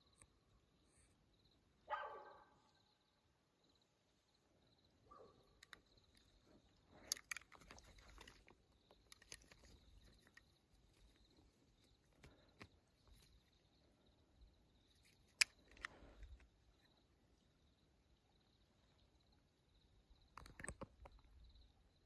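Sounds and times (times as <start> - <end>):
sharp clicks and rustles: 5.5 - 13.6, 14.8 - 17.0, 20.3 - 21.4.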